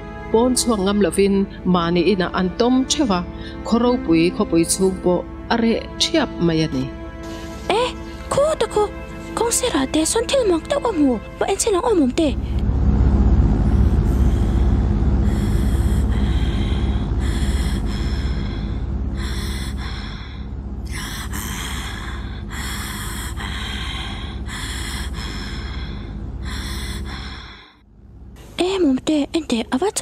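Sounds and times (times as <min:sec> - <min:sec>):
cartoon plane engine drone: 0:12.4 - 0:27.6.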